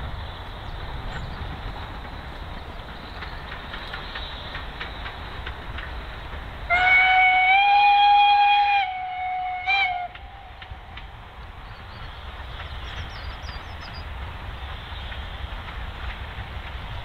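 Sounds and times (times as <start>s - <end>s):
train rumbling on track: 0.0s - 17.0s
steam locomotive whistle: 6.7s - 10.5s.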